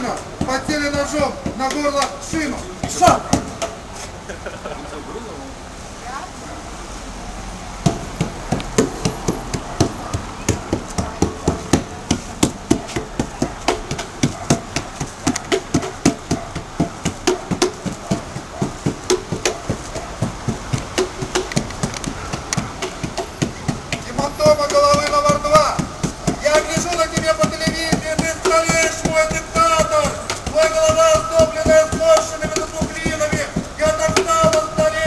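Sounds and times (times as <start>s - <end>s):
sharp knocks: 0.0s - 3.8s, 7.8s - 35.0s.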